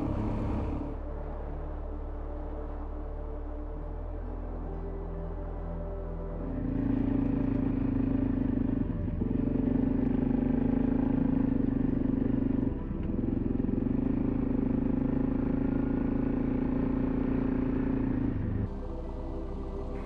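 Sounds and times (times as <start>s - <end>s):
motorcycle engine running: 0.0s - 1.0s, 6.5s - 20.0s.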